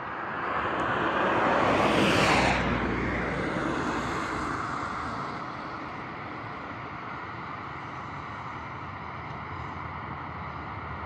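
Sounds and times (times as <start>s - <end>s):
car passing: 0.0s - 8.6s.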